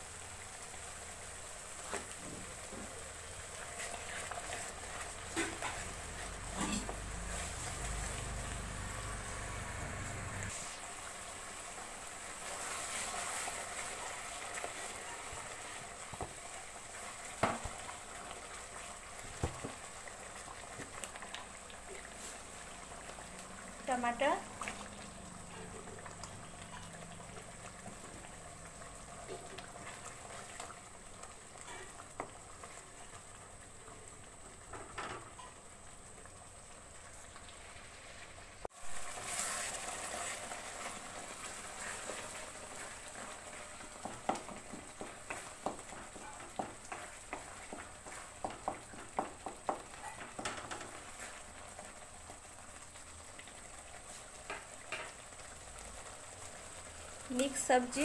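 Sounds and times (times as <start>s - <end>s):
curry bubbling and sizzling: 0.0s - 58.0s
wooden spatula stirring: 1.8s - 9.0s, 12.4s - 33.2s, 39.2s - 55.4s.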